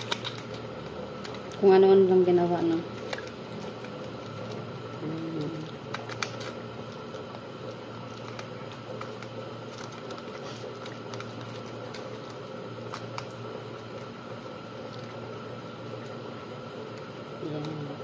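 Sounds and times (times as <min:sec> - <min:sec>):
foil crinkling: 0:00.0 - 0:16.2
steady background hum: 0:00.0 - 0:18.0
person humming: 0:05.0 - 0:05.7.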